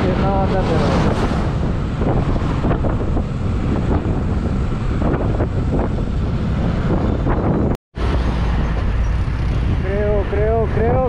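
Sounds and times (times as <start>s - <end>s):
road noise: 0.0s - 11.0s
wind buffeting microphone: 0.0s - 11.0s.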